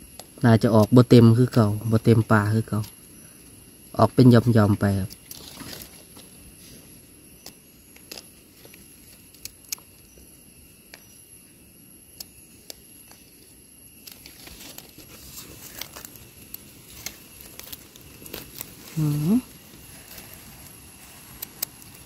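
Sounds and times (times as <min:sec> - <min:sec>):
hands rustling dry leaves: 0:14.0 - 0:22.0.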